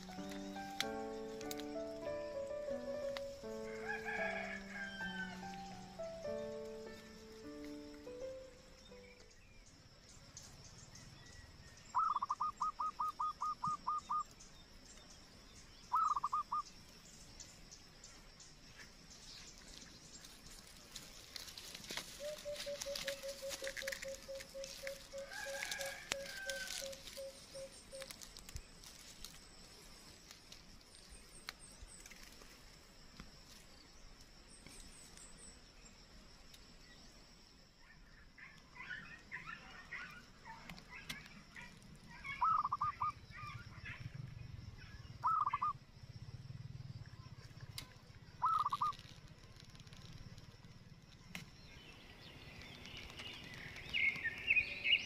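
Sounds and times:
short loud bird calls: 11.9 - 14.3, 15.9 - 16.6, 38.4 - 44.1, 44.8 - 45.8, 48.4 - 49.0
birds calling: 11.9 - 14.6, 15.8 - 16.8, 21.2 - 28.3, 38.0 - 45.8, 48.3 - 49.2, 51.3 - 55.0.

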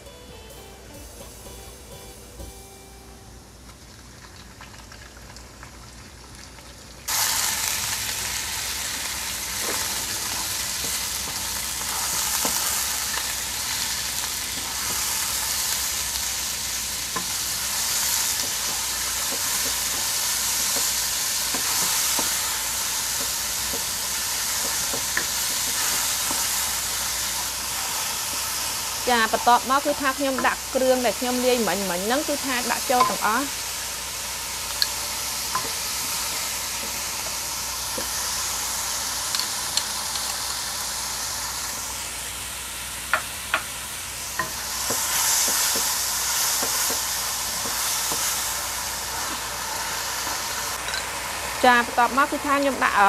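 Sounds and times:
acoustic guitar music: 0.0 - 3.7
meat sizzling in hot oil: 3.8 - 53.0
spatula tapping pan: 33.0 - 33.3, 46.6 - 48.3.

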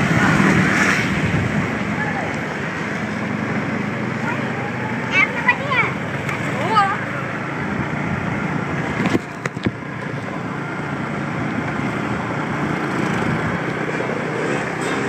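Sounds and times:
wind and road noise: 0.0 - 15.0
small engine running: 12.3 - 15.0.

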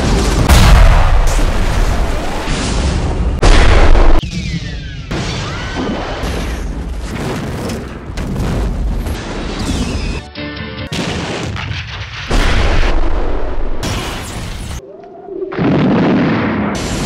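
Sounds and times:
explosions: 0.0 - 9.9, 10.9 - 14.8, 15.5 - 17.0
music: 9.6 - 12.3.

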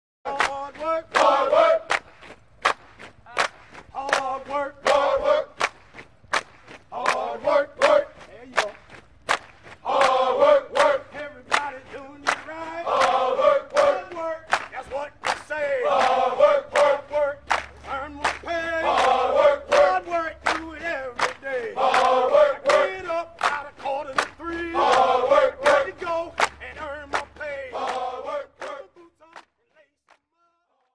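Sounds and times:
group chanting in unison: 0.3 - 2.1, 4.0 - 5.7, 6.9 - 8.2, 9.8 - 29.1
marching step beats: 0.3 - 29.8.

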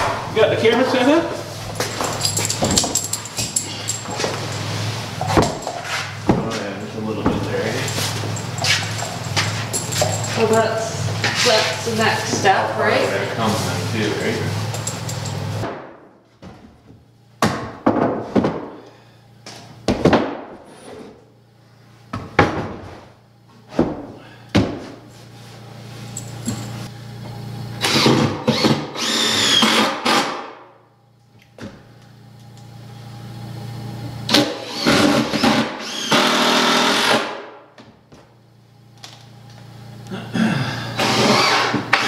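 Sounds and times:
steady low hum: 0.0 - 29.3, 37.5 - 42.0
cordless drill driving screws: 27.8 - 30.3, 34.3 - 37.3, 41.0 - 42.0.

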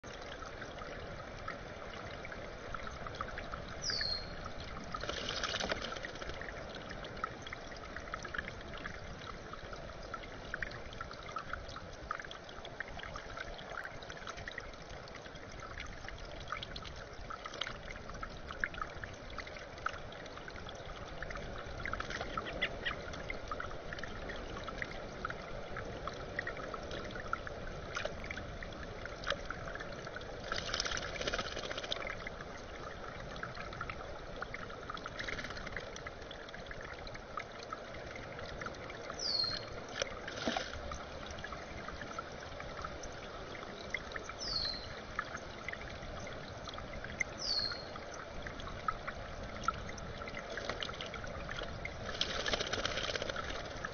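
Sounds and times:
water trickling: 0.0 - 53.9
bird splashing in water: 4.9 - 6.4, 30.4 - 32.1, 52.0 - 53.7.

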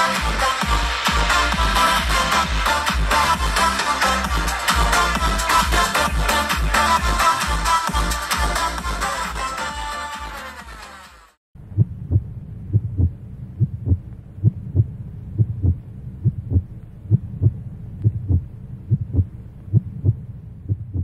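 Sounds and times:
electronic dance music: 0.0 - 11.4
heartbeat thumps: 11.6 - 21.0.

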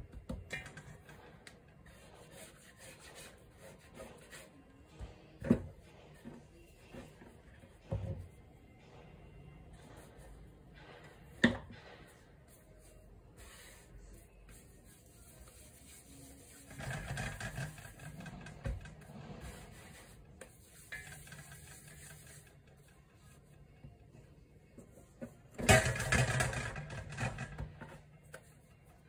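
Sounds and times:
hands kneading dough: 12.4 - 22.6.

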